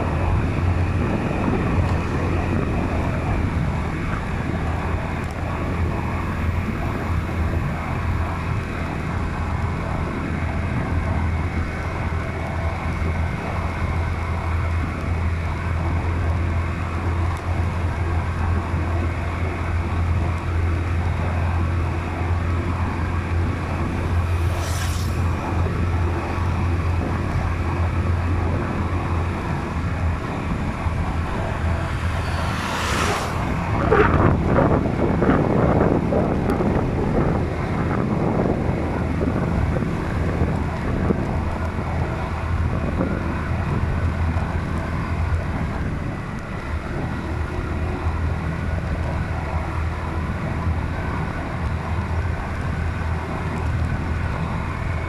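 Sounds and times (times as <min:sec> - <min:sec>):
vehicle driving drone: 0:00.0 - 0:55.0
wind noise on microphone: 0:00.0 - 0:55.0
rushing swell: 0:23.1 - 0:27.0, 0:29.7 - 0:35.3.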